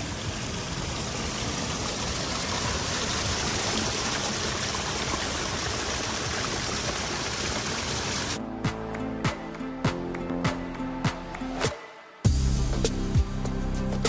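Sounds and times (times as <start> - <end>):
creek cascading over rocks: 0.0 - 8.4.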